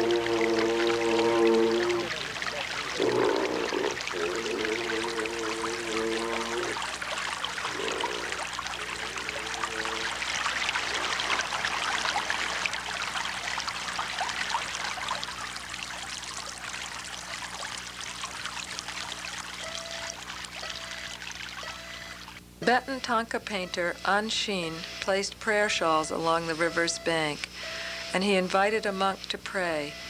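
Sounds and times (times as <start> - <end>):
river water flowing and splashing: 0.0 - 22.4.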